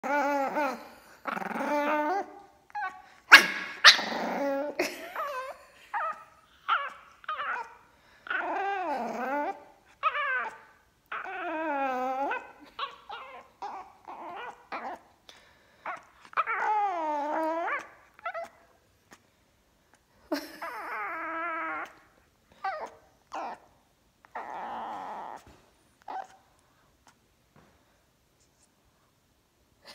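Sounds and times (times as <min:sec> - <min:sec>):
puppy grumbling and whining: 0:00.0 - 0:15.1, 0:15.8 - 0:19.2, 0:20.3 - 0:26.5
puppy yips: 0:01.8 - 0:15.0, 0:24.3 - 0:26.5.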